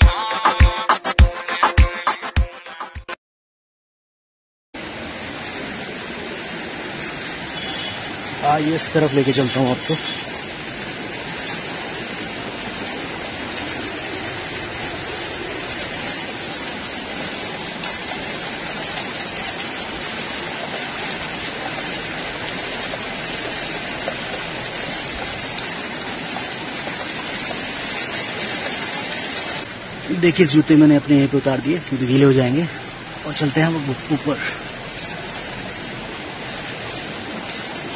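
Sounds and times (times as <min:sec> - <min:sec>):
water dripping onto rock: 0:37.4 - 0:37.7.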